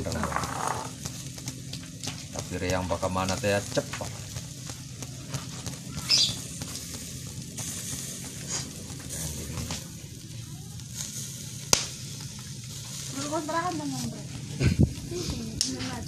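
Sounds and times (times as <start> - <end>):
sharp ticks: 0.0 - 9.9
squid sizzling on a grill: 0.0 - 16.0.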